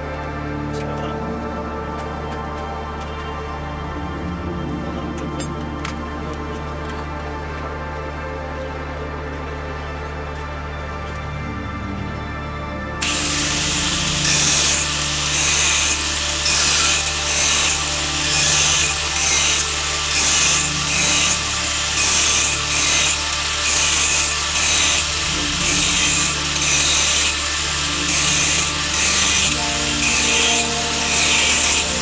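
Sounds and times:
hand tool scraping: 13.0 - 32.0.

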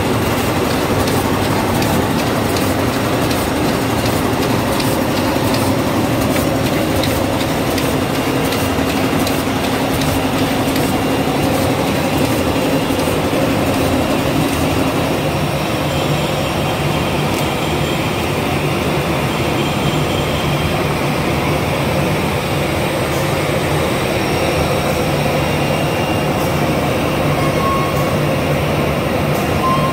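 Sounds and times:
machine clattering and clicking: 0.0 - 15.1.

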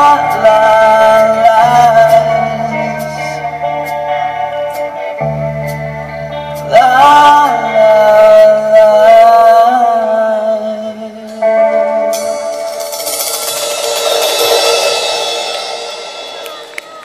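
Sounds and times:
man singing a long note: 0.0 - 3.6, 6.7 - 11.4
keyboard and guitar chords: 0.0 - 17.0
cymbal wash: 12.1 - 17.0.

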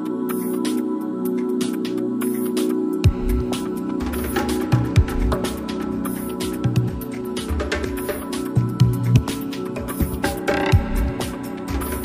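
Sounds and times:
electronic music with bass: 3.0 - 12.0.

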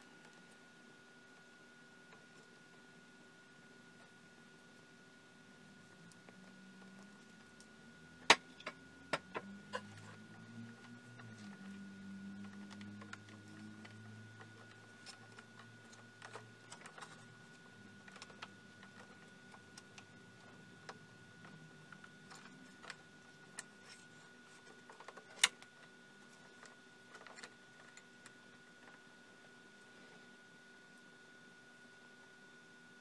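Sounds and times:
fingers handling wires clicking: 8.3 - 29.0.

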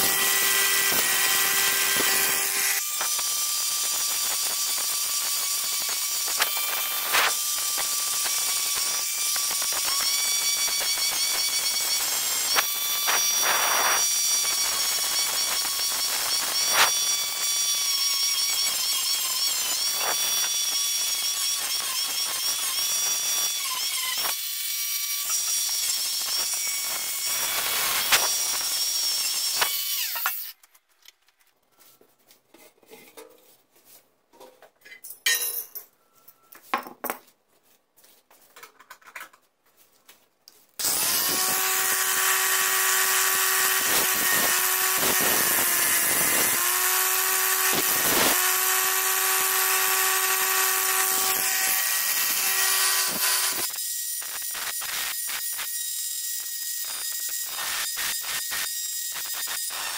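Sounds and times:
faint knocks and handling: 31.0 - 35.1.

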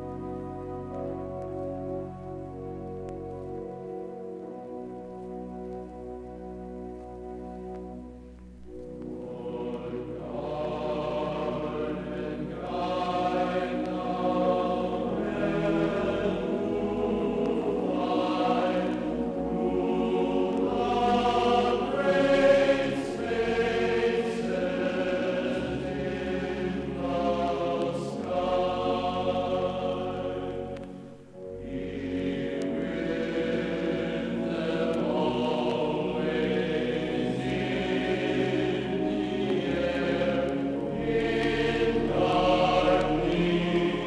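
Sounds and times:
choir singing chords: 0.0 - 44.0.

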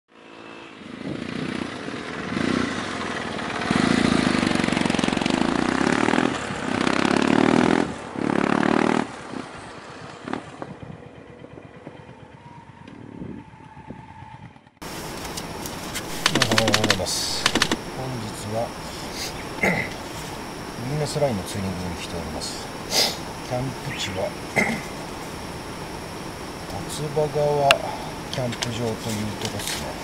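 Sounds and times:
motorcycle engine revving: 0.1 - 15.0, 15.7 - 27.5
sharp clicks: 15.2 - 17.9.

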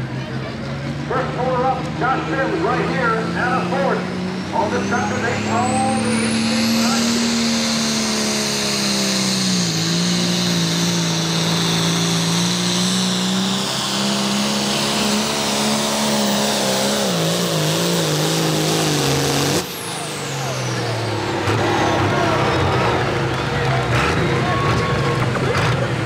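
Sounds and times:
diesel tractor engine at full throttle: 0.0 - 26.0
high turbo whistle: 4.6 - 15.5.

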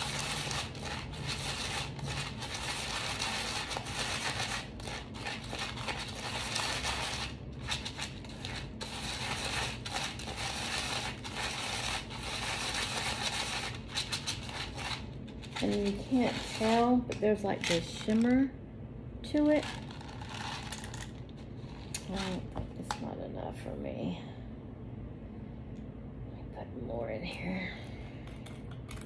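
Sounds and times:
small plastic beads scraping and rattling: 0.0 - 16.9, 19.4 - 22.4.

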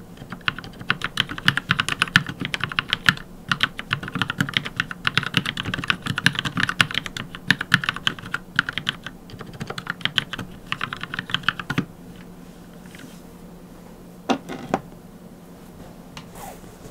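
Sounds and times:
mechanical keyboard typing: 0.2 - 11.9.

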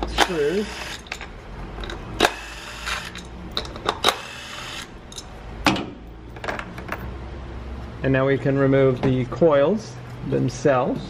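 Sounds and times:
metallic clicks of tool and screws: 0.0 - 4.2.

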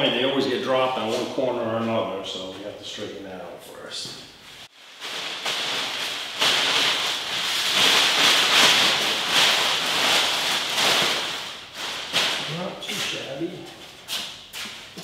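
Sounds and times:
plastic wrapping crinkling: 4.7 - 15.0.

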